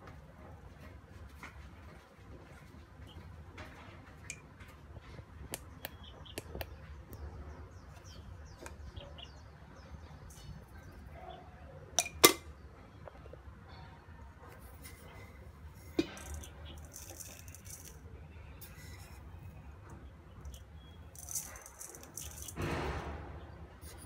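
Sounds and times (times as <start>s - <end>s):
sharp knocks: 22.6s - 23.5s.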